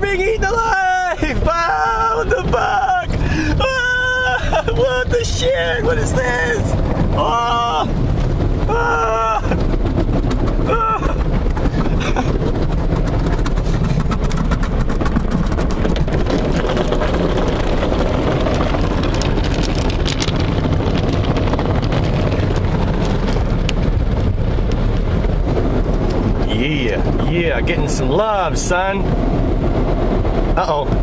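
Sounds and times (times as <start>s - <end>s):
water jets spraying: 0.0s - 22.6s
rotating brushes scrubbing car: 9.5s - 23.4s.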